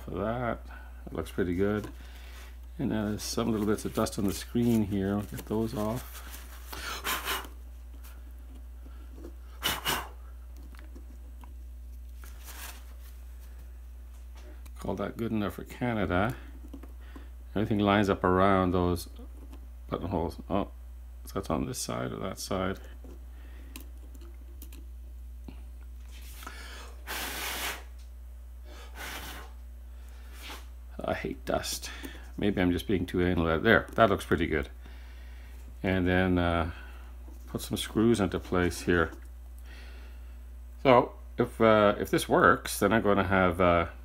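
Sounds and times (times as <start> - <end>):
paper towel rubbing screen: 3.0 - 7.6
air puffs: 5.8 - 8.2, 9.0 - 10.3, 26.1 - 28.0, 28.7 - 30.8
double puff of breath: 26.4 - 27.9, 28.7 - 29.6.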